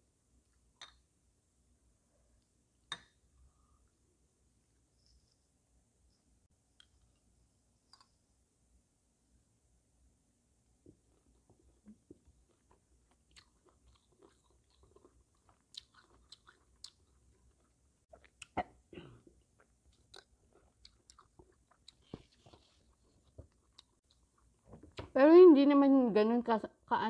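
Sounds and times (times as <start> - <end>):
person chewing: 11.7 - 18.8, 19.4 - 25.1.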